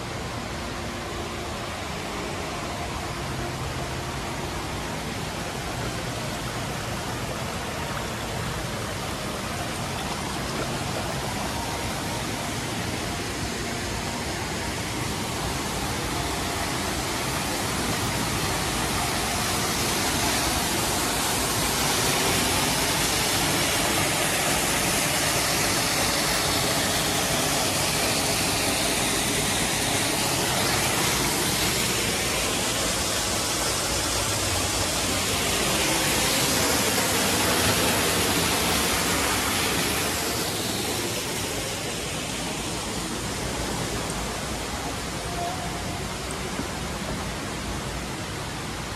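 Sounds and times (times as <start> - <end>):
waterfall splashing into a pool: 0.0 - 48.9.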